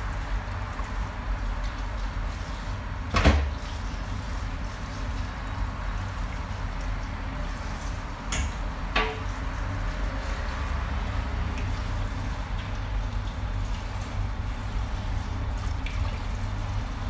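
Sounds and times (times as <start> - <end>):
knocks and clatter in kitchen sink: 3.0 - 3.8, 8.2 - 9.4.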